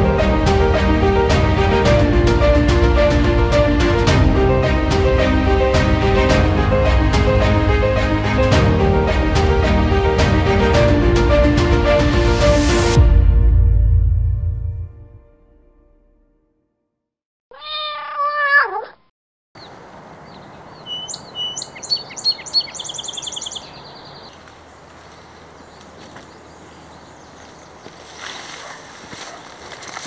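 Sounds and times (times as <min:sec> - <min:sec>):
meow-like animal call: 0:17.5 - 0:19.0
songbird chirping and trilling: 0:19.6 - 0:28.2
outdoor ambience: 0:19.6 - 0:30.0.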